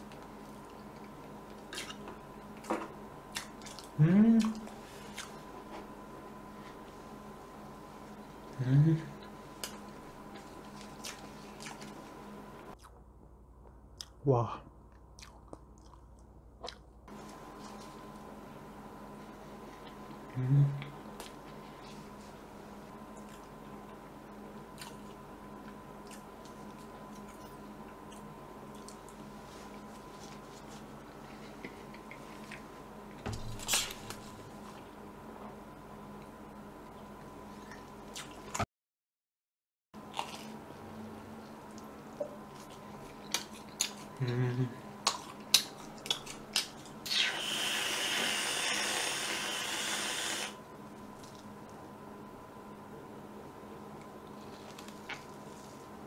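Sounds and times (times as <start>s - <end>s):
low electrical hum: 0.0s - 38.6s, 40.0s - 56.0s
person chewing: 3.3s - 5.4s, 9.6s - 12.0s, 12.7s - 14.2s, 14.9s - 16.9s, 24.7s - 30.8s, 37.6s - 38.6s, 40.0s - 47.6s
sauce squeezed from squeeze bottle: 47.0s - 50.6s
aerosol can spraying hiss: 47.3s - 50.6s.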